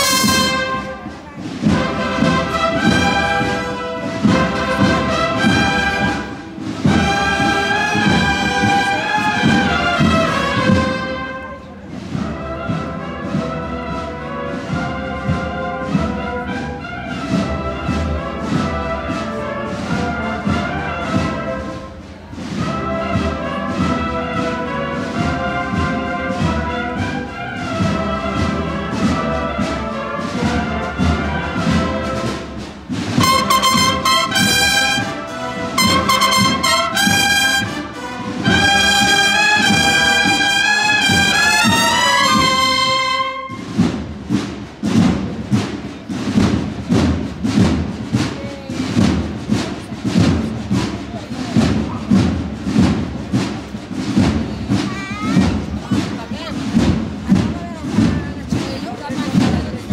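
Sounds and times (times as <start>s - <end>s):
brass melody and chords: 0.0s - 11.7s, 22.6s - 43.8s
steady drumming: 0.0s - 59.9s.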